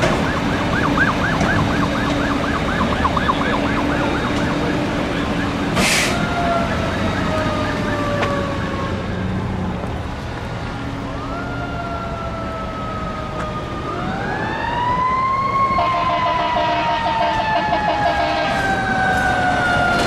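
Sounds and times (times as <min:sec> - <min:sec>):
ambulance siren wailing: 0:00.0 - 0:10.1, 0:10.7 - 0:20.0
fast pulsing siren tone: 0:00.2 - 0:08.7.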